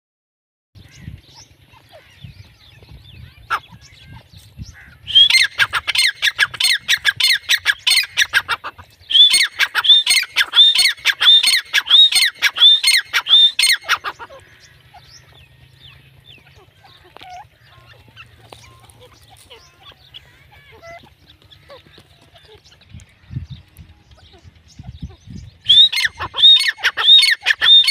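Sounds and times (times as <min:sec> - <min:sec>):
francolin calling sharp notes: 0:05.1 - 0:14.4, 0:25.7 - 0:27.9.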